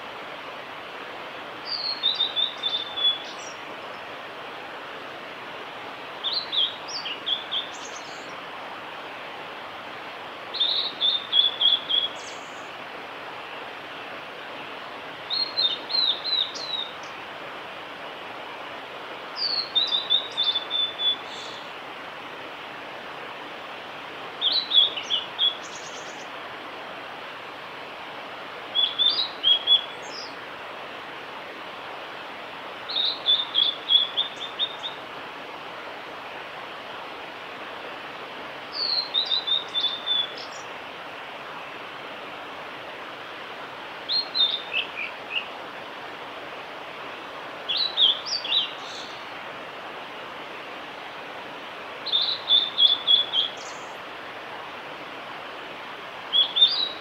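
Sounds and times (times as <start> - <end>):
steady background hiss: 0.0 - 57.0
bird singing whistled notes: 1.6 - 3.6, 6.2 - 8.3, 10.5 - 12.7, 15.3 - 17.1, 19.4 - 21.7, 24.4 - 26.3, 28.7 - 30.3, 32.9 - 35.0, 38.7 - 40.7, 44.1 - 45.5, 47.7 - 49.2, 52.0 - 54.0, 56.3 - 57.0.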